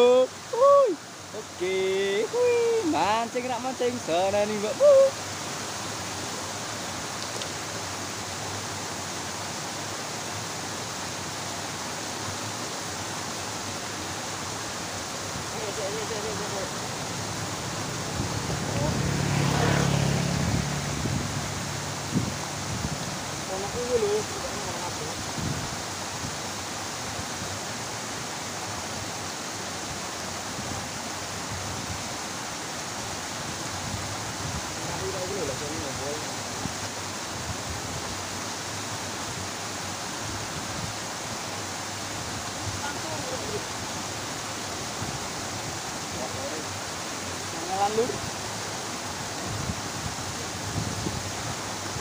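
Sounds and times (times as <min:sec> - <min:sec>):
water pouring down a cascade: 0:00.0 - 0:52.0.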